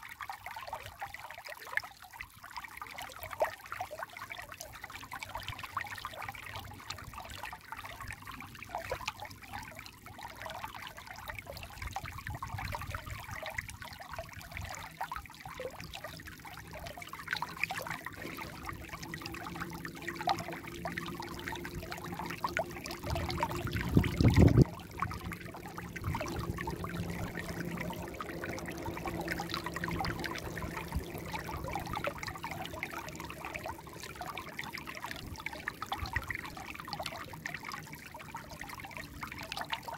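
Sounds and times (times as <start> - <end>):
stream trickling over stones: 0.0 - 39.9
low rumble: 18.0 - 34.4.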